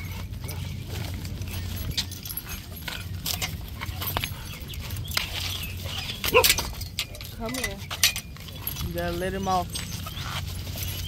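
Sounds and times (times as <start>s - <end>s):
dog whining: 0.0s - 7.4s
leash and collar jingling: 0.0s - 11.0s.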